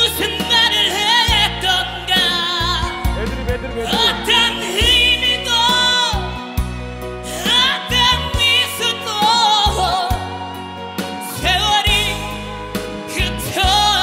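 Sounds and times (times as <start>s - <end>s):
man singing: 0.0s - 6.4s
band accompaniment: 0.0s - 14.0s.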